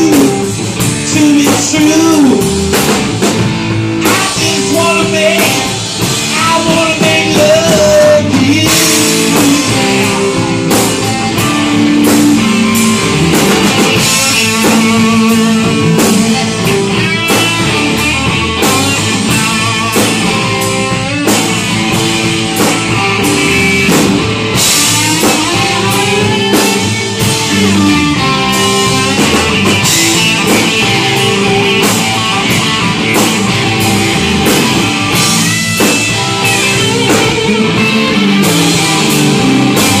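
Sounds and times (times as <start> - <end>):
drum kit: 0.0 - 40.0
electric bass: 0.0 - 40.0
electric guitars: 0.0 - 40.0.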